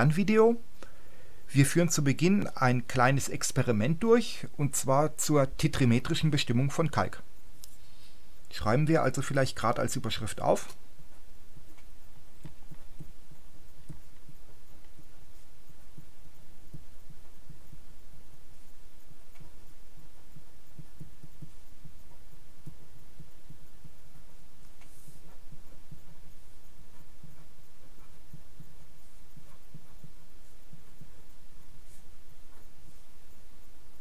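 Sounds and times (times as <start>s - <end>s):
low throbbing hum: 10.8s - 34.0s
felt-tip pen writing on paper: 20.1s - 32.8s.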